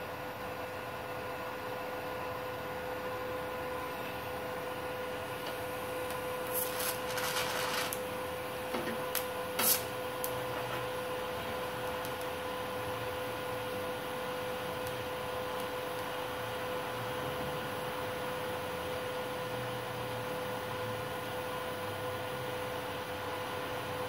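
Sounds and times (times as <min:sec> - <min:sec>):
electrical hum: 0:00.0 - 0:24.0
welding arc crackling: 0:05.2 - 0:16.9.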